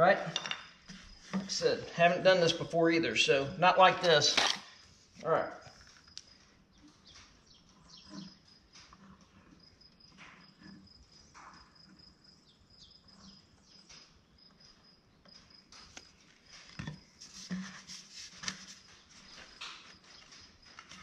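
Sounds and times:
knocks and clatter of tubes: 0.0 - 1.7
faint insect chirping: 9.3 - 21.0.

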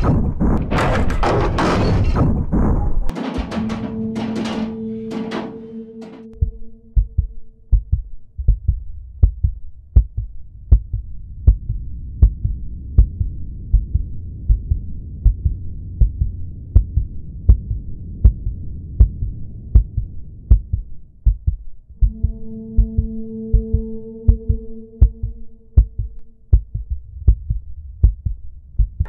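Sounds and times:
low droning hum: 3.0 - 28.9
heartbeat thumps: 6.3 - 29.0.

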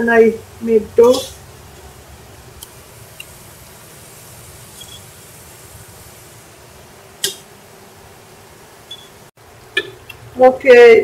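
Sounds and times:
food sizzling in oil: 0.0 - 10.0
sharp click: 7.2 - 7.5.

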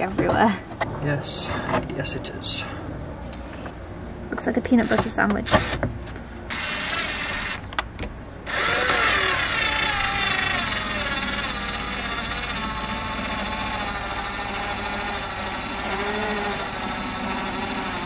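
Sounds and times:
cordless drill driving screw into wood: 4.8 - 5.8, 6.5 - 7.6, 8.5 - 18.0
drill clicks: 6.5 - 7.8, 8.5 - 18.0.

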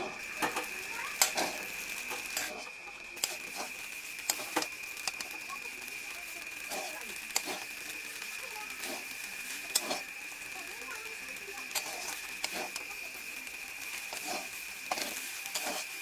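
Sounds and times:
metal spatula scraping pan: 0.4 - 3.7, 9.7 - 10.1, 14.1 - 16.0.

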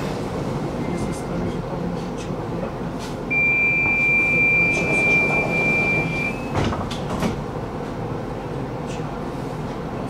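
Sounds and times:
tram interior hum: 0.0 - 10.0
high warning beep: 3.3 - 6.6
sliding doors knocking shut: 4.8 - 7.5.

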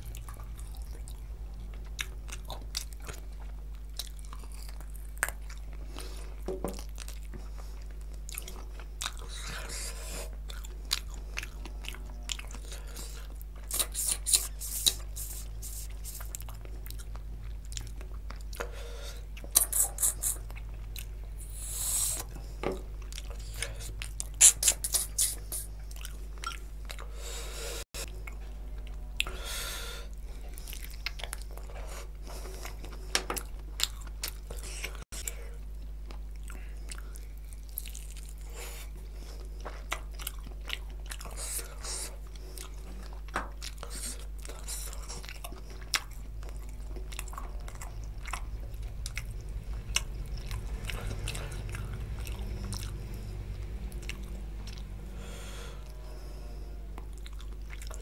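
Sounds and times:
chewing food: 0.0 - 58.0
wet mouth clicks: 13.7 - 17.2, 19.4 - 22.4, 23.1 - 27.1.

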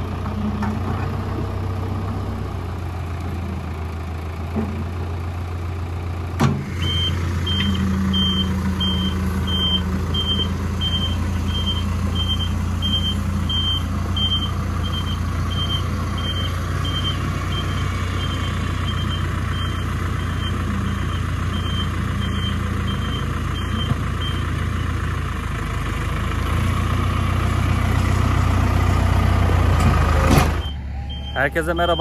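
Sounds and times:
tractor engine running: 0.0 - 32.0
reversing alarm beeping: 6.8 - 24.5, 30.6 - 32.0.

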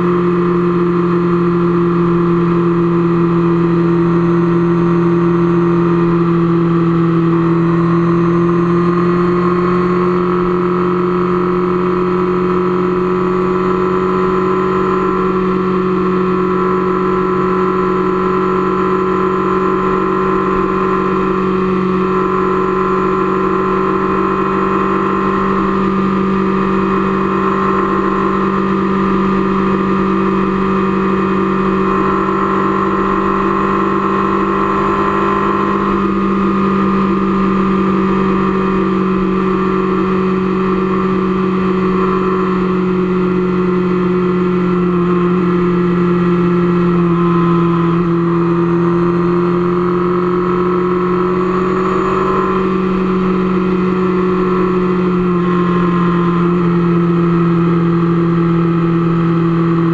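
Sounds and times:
motorcycle engine cruising: 0.0 - 59.9.

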